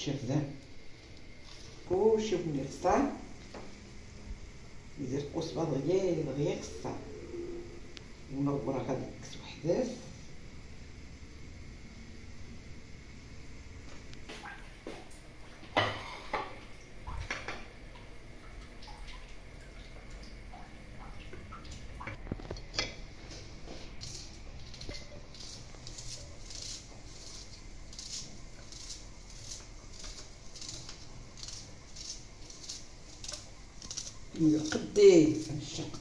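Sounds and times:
dishes clinking on counter: 0:15.8 - 0:16.6
knife slicing onion: 0:23.4 - 0:36.0.

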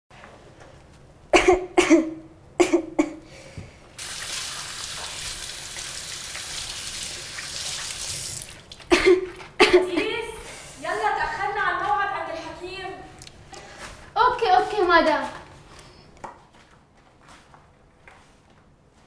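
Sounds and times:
woman coughing: 0:01.3 - 0:03.2, 0:08.9 - 0:10.4.

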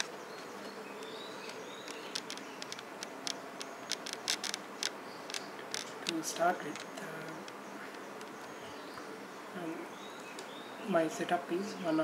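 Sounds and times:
steady buzzing hum: 0:00.0 - 0:12.0
sharp clicks: 0:01.0 - 0:08.6.

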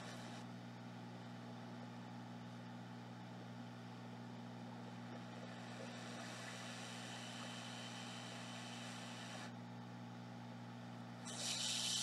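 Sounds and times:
electronics hum and fan hiss: 0:00.0 - 0:12.0
hiss of air: 0:05.8 - 0:09.5, 0:11.3 - 0:12.0.

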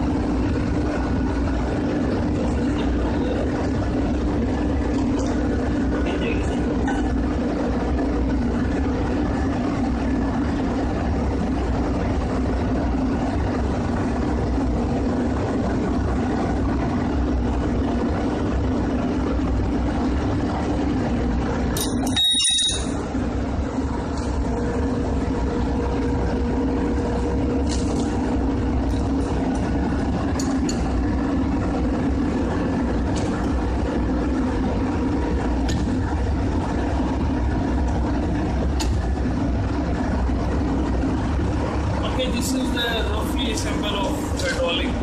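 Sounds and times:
machinery droning: 0:00.0 - 0:45.0.

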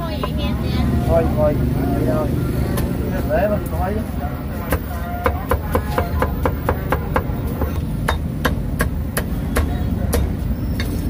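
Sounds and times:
cleaver chopping on wooden block: 0:04.7 - 0:10.4.

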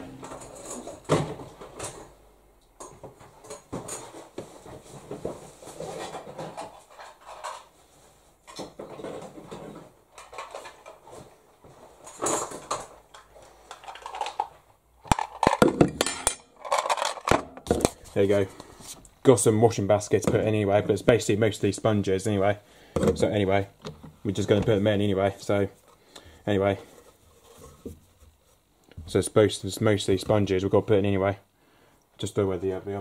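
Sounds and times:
household items clattering: 0:00.0 - 0:02.2, 0:02.8 - 0:18.6.

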